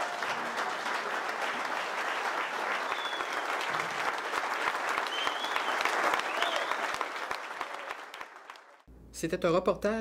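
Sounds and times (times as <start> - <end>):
crowd applauding: 0.0 - 8.9.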